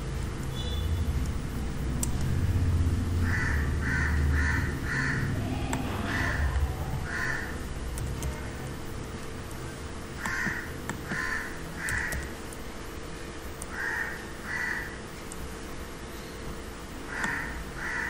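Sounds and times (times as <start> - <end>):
faint constant hum: 0.0 - 18.0
low background rumble: 0.0 - 18.0
bird calling: 3.2 - 7.6.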